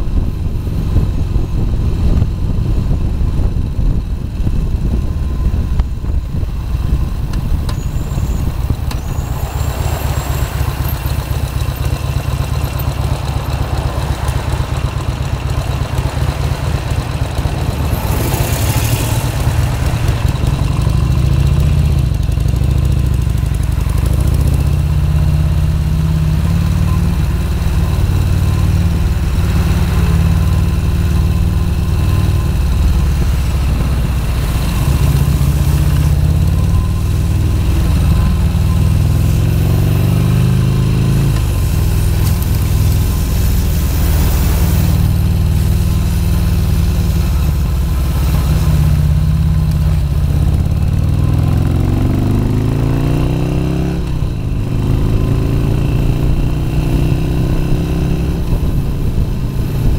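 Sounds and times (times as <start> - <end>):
motorcycle engine running: 0.0 - 59.9
rushing hiss: 41.5 - 48.8.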